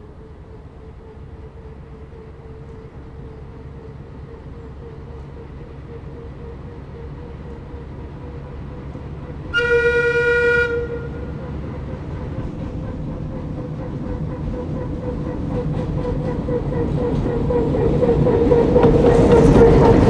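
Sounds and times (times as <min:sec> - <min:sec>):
diesel locomotive running: 0:00.0 - 0:20.0
locomotive horn blast: 0:09.5 - 0:11.5.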